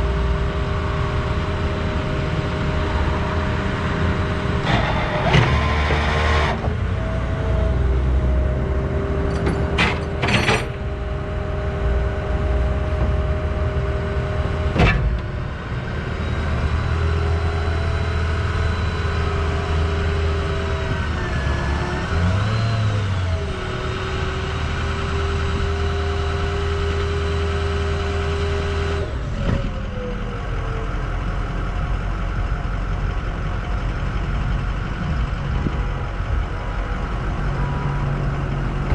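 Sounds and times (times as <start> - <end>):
truck engine rumble: 0.0 - 38.9.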